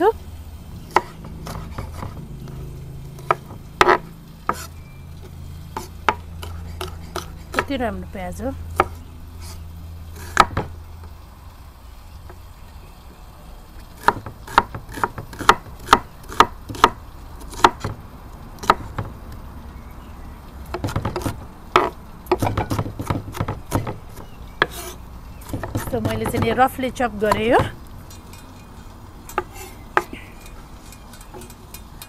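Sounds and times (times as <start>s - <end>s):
knife chopping onion: 0.9s - 2.2s, 3.2s - 4.7s, 5.8s - 7.8s, 10.2s - 10.7s, 14.0s - 18.0s, 18.6s - 19.1s, 20.7s - 26.6s.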